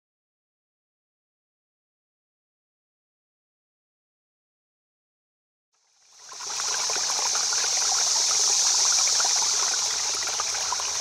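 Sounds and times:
running water: 6.0 - 11.0.

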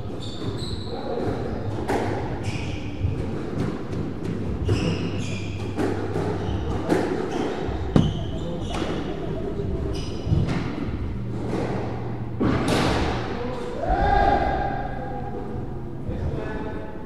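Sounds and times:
shoes squeaking on wooden floor: 4.6 - 9.2
squash ball hits: 7.9 - 9.0.

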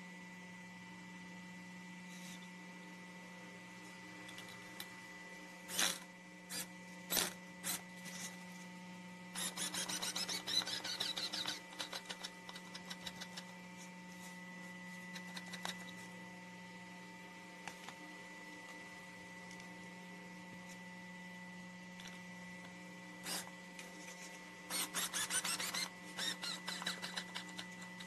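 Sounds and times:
steady low hum: 0.0 - 28.0
electric screwdriver clicking and grinding: 9.4 - 13.5, 23.3 - 23.5, 24.7 - 28.0.

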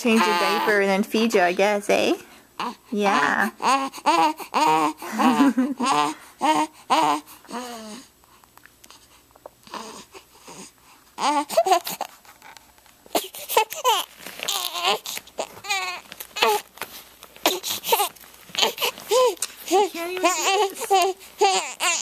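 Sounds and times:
baby crying: 0.0 - 0.9, 2.6 - 8.1, 9.6 - 12.2, 13.1 - 16.7, 17.4 - 22.0.

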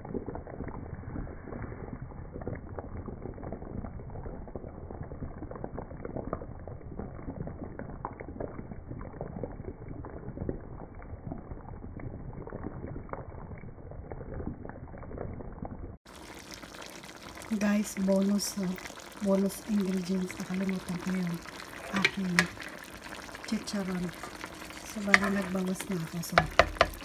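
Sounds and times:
stew bubbling in a pan: 0.0 - 27.0.

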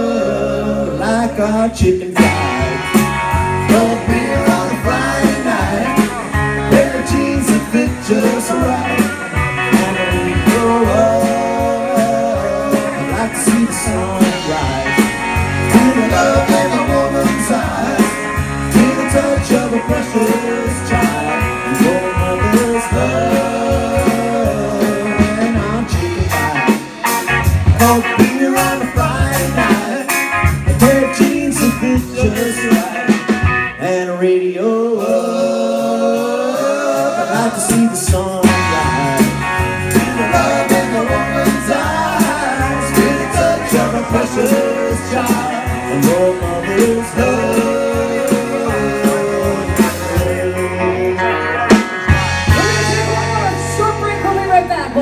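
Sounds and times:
drum kit: 0.0 - 34.0, 35.0 - 55.0
electric bass: 0.0 - 34.1, 34.8 - 55.0
person singing: 0.0 - 53.7
electric guitar: 0.0 - 55.0.

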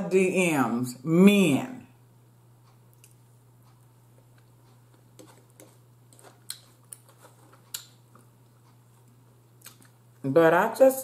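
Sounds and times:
low steady hum: 0.0 - 11.0
person chewing meat: 3.0 - 8.8.

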